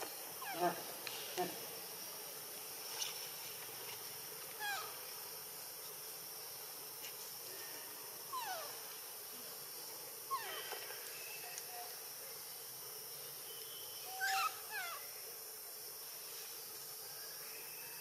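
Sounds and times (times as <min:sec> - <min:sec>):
baby macaque crying: 0:04.6 - 0:04.9, 0:08.4 - 0:08.7, 0:14.1 - 0:15.0.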